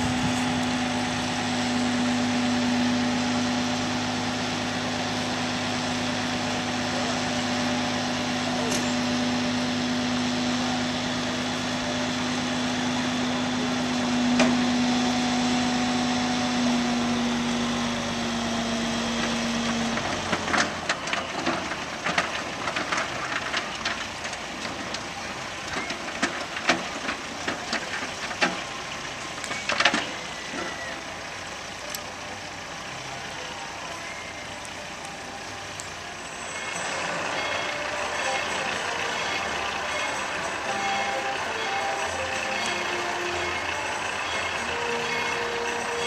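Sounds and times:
truck engine humming: 0.0 - 46.0
coal clattering from trailer: 18.6 - 31.1.

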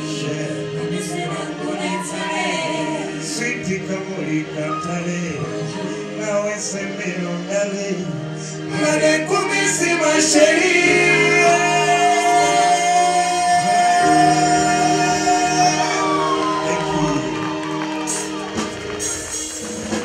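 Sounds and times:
men singing into microphones: 0.0 - 17.6
electric keyboard: 0.0 - 20.0.

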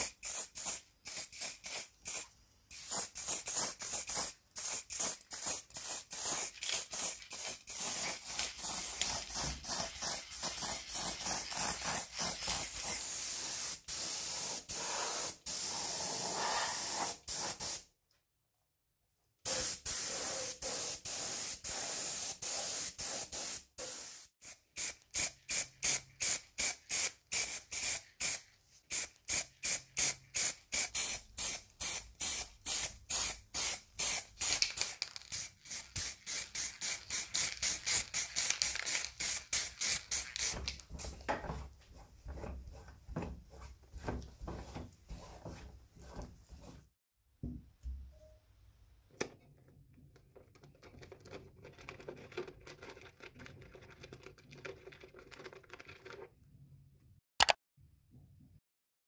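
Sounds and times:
spray paint hissing: 0.0 - 17.8, 19.5 - 40.6.

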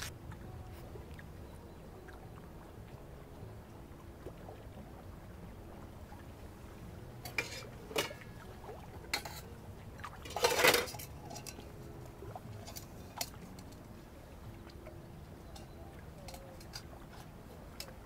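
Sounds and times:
light clinks and clicks: 10.3 - 11.7, 15.5 - 18.0.

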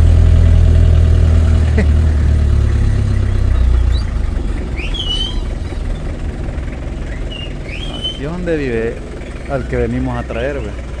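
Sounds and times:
vehicle engine humming: 0.0 - 11.0
short high squeak: 4.8 - 6.1, 7.1 - 8.3.

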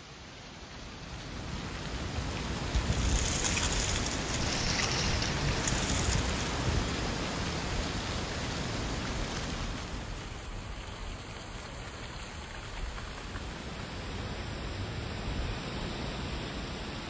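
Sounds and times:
rain: 0.0 - 17.0
wind: 0.0 - 17.0
wind rumble on microphone: 1.0 - 10.2.

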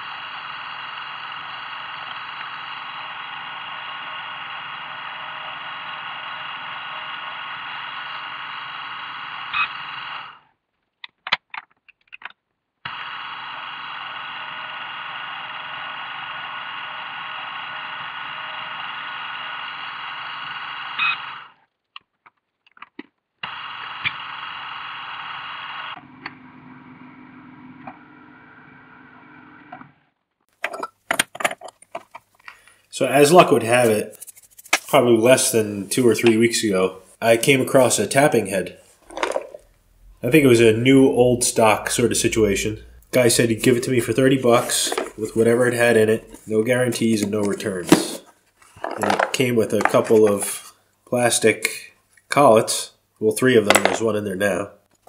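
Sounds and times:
tapping head low hum: 39.0 - 50.7.

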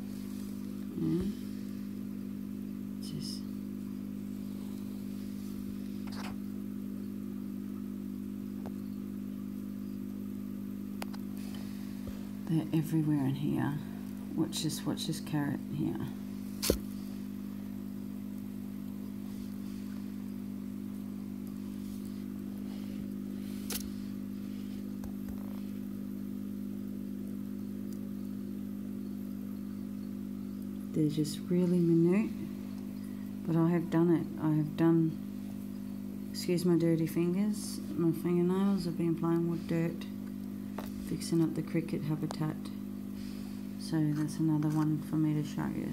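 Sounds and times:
low machine hum: 0.0 - 45.9
small click: 23.6 - 23.9.

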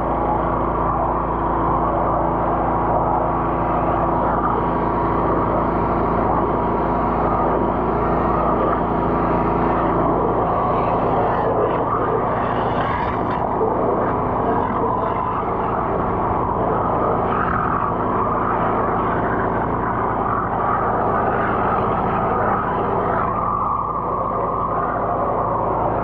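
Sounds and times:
drain jetter engine and pump: 0.0 - 26.0.

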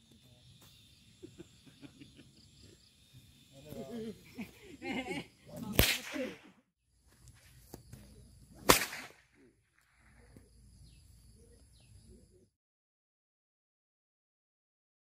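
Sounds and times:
whip crack: 5.6 - 6.6, 8.6 - 9.4.

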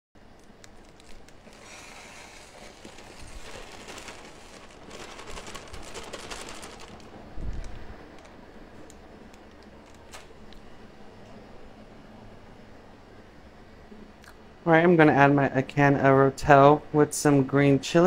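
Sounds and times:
potato shreds pouring: 0.4 - 8.3
plastic bag crinkling: 0.4 - 10.6.

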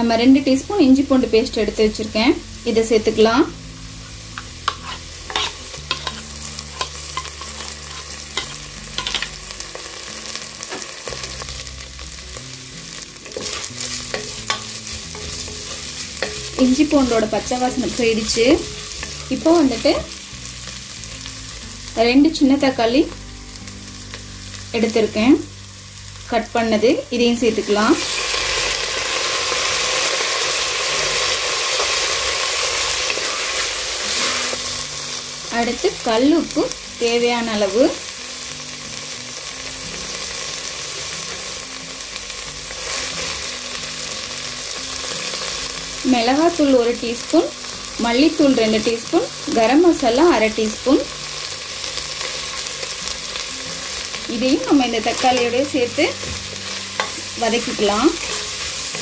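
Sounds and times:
onions sizzling in hot oil: 0.0 - 59.0
wooden spatula scraping pot: 4.7 - 9.2.

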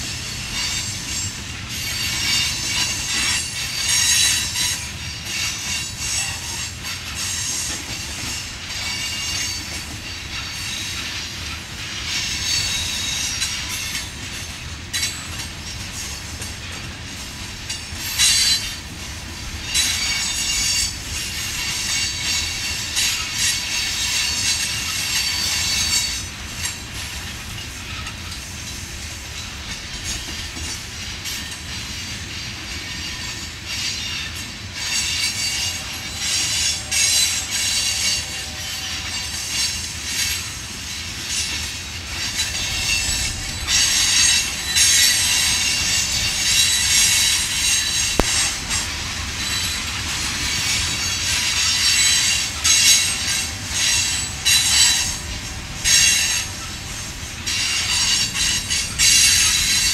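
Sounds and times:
low rumble of wheels on rail: 0.0 - 59.9
steel wheels squealing: 0.0 - 59.9
sharp metal clanks: 43.8 - 49.8.

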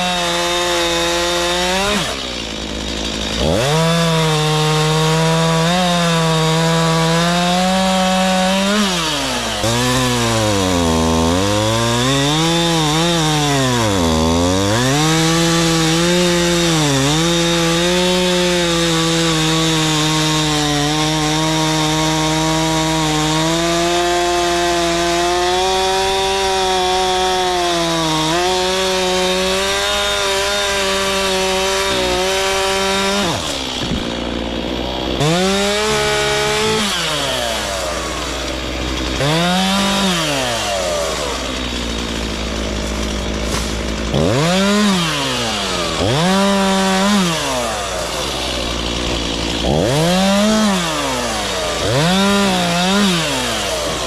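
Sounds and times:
chainsaw revving: 0.0 - 54.0.

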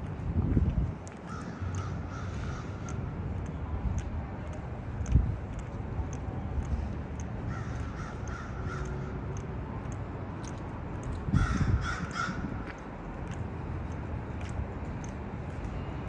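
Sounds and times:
crows cawing: 1.3 - 3.0, 7.5 - 9.2, 11.4 - 12.6.

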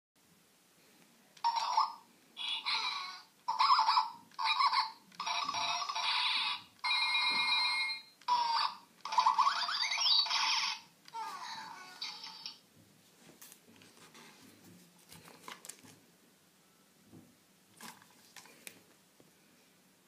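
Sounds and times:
toy electronic sound clips: 1.4 - 12.6.

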